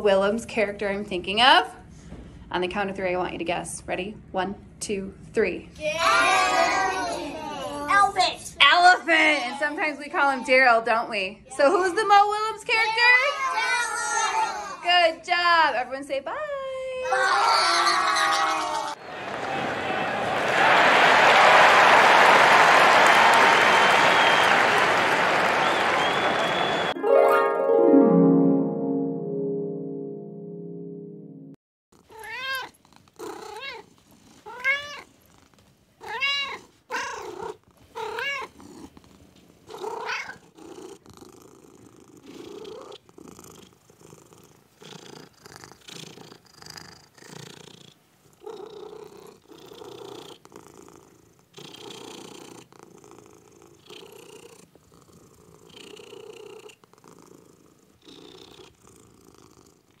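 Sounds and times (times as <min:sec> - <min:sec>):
cat purring: 0:32.0 - 1:00.0
kittens mewing: 0:36.0 - 0:39.0.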